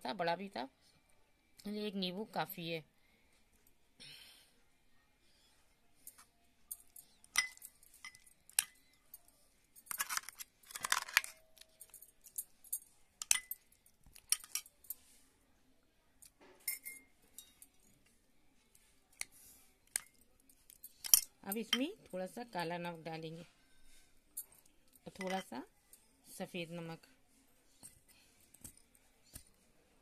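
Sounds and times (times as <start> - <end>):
spoon clinking against glass bowl: 6.8 - 9.0, 13.2 - 14.7, 16.7 - 17.8, 25.1 - 25.6.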